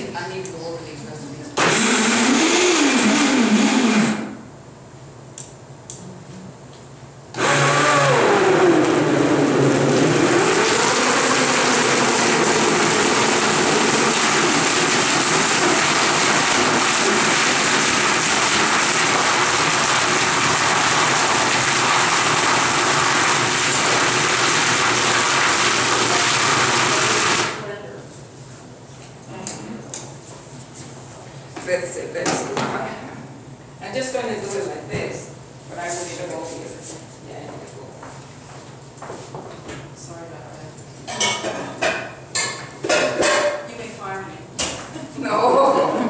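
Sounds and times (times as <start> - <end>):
blender motor running: 1.6 - 4.4, 7.3 - 27.7.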